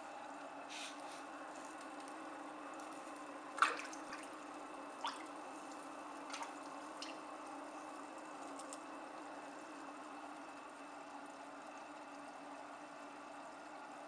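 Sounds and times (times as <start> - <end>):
aquarium humming: 0.0 - 14.0
water drips: 3.6 - 7.5.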